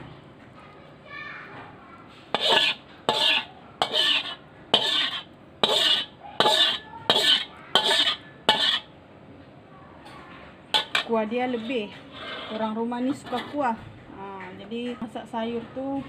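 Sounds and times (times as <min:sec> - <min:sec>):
spatula scraping wok: 0:02.1 - 0:09.0, 0:10.7 - 0:13.8.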